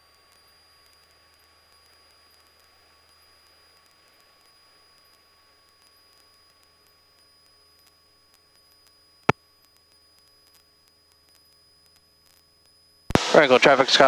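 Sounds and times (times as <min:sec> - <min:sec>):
faint electronic hum: 0:00.0 - 0:14.0.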